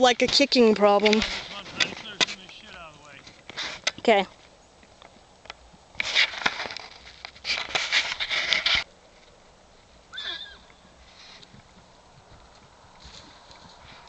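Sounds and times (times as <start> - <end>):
horse squealing: 10.1 - 10.9.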